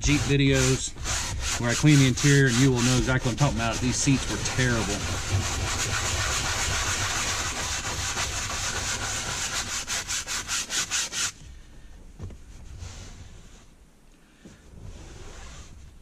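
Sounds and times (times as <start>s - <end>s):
brush scrubbing cloth seat: 0.0s - 11.4s, 14.8s - 16.0s.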